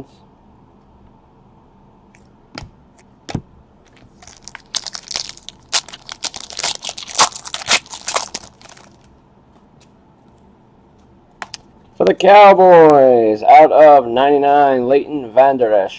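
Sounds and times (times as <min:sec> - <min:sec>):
cards shuffling and rustling: 0:03.8 - 0:09.1.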